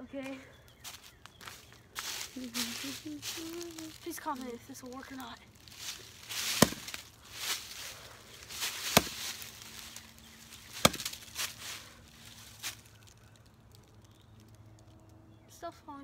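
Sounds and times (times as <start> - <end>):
axe chopping tree trunk: 6.2 - 7.8, 8.4 - 11.6.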